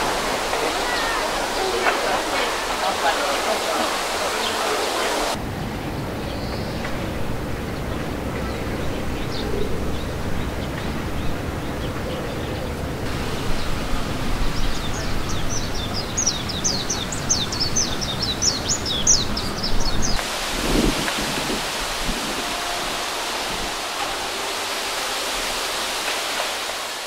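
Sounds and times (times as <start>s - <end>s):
outdoor background hiss: 0.0s - 11.8s, 12.5s - 27.0s
small birds chirping: 14.4s - 20.2s.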